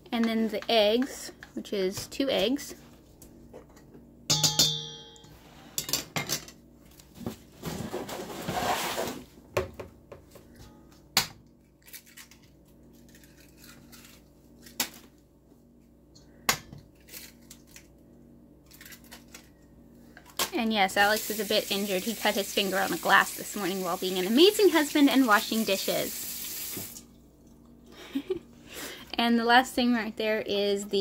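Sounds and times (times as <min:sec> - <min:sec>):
metal bowl clanging: 0:04.3 - 0:05.4
scraping and rustling: 0:07.0 - 0:09.3.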